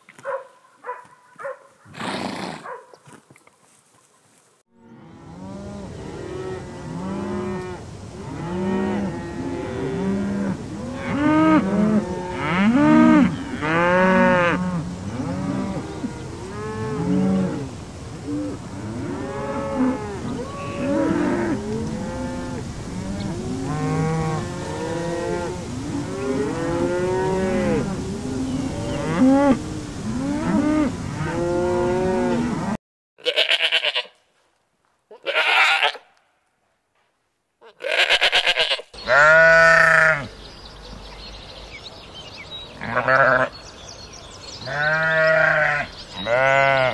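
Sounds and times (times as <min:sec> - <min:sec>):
young goat bleating: 0:33.2 - 0:34.2, 0:35.1 - 0:36.1, 0:37.6 - 0:40.3, 0:42.8 - 0:43.5, 0:44.7 - 0:46.9.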